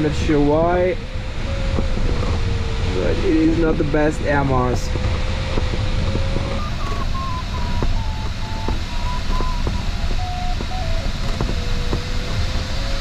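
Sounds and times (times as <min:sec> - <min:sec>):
rushing airflow noise: 0:00.0 - 0:13.0
variometer tone stepping lower: 0:00.0 - 0:13.0.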